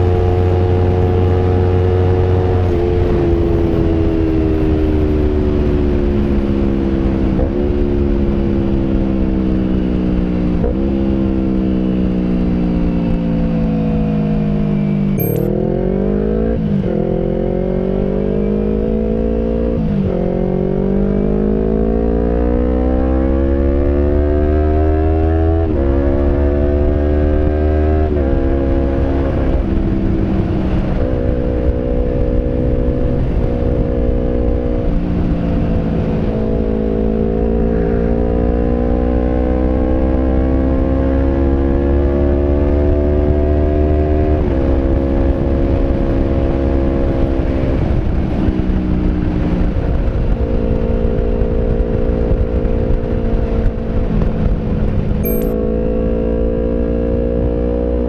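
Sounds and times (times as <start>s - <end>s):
motorcycle engine revving: 13.0s - 58.0s.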